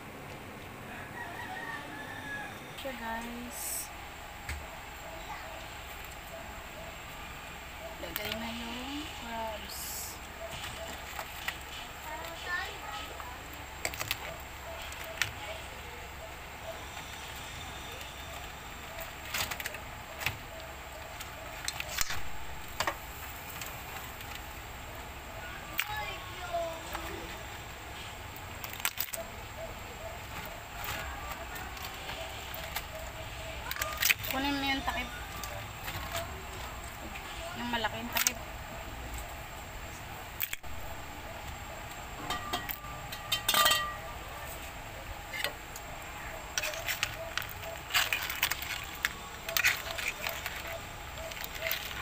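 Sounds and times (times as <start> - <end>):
crab shells clacking on metal pot: 42.2 - 44.1, 46.4 - 52.0
metal clang ringing: 42.2 - 44.2
metal cookware clicks: 42.3 - 44.0.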